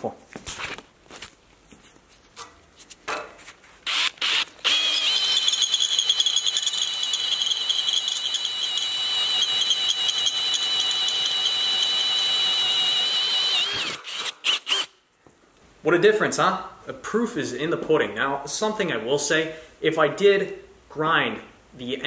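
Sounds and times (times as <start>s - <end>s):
electric drill whining through steel: 3.8s - 15.0s.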